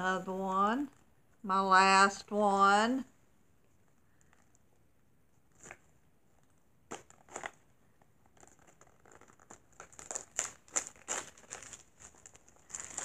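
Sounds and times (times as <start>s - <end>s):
plastic pack crinkling and tearing: 6.9s - 13.0s.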